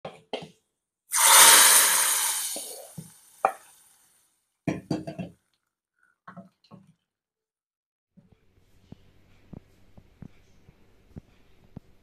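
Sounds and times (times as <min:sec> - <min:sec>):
hot oil sizzling: 0:01.1 - 0:04.2.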